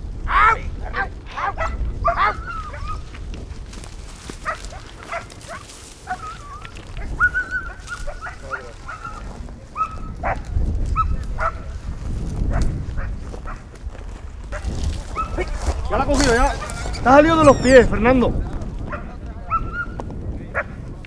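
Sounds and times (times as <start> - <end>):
low microphone rumble: 0.0 - 21.0
dogs yelping and barking: 0.4 - 3.1, 4.4 - 11.6, 14.5 - 18.0, 18.9 - 20.0
dog whining: 16.4 - 17.9.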